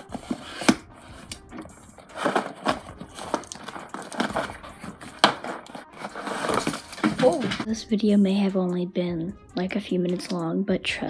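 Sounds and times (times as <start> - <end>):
packing paper crinkling and tearing: 0.0 - 7.7.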